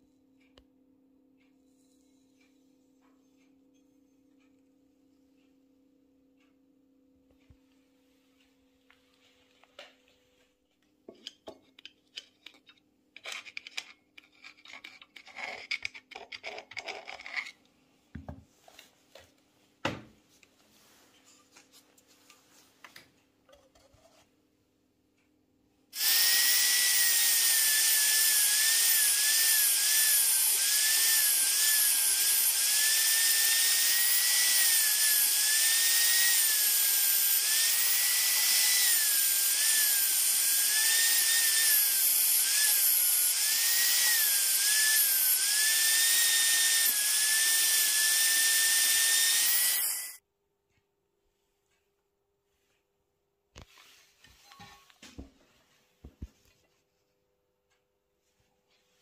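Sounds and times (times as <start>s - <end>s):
metal clicks and scrapes on aluminium: 11.1s - 17.7s
router high whine: 26.0s - 50.2s.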